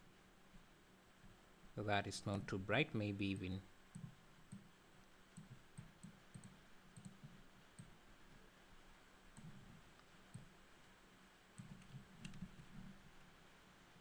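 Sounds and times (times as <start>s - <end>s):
computer mouse clicks: 3.3s - 4.7s, 5.3s - 8.0s, 9.3s - 10.6s, 11.6s - 12.9s.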